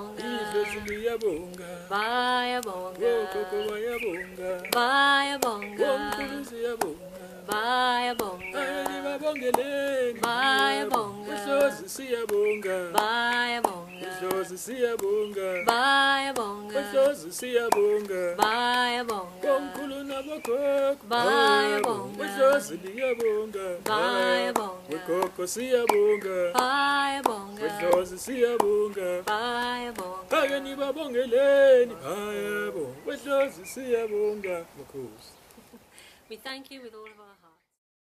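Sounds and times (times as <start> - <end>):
man and woman singing: 0.0 - 34.8
soft hand claps: 0.1 - 1.7, 2.4 - 30.7.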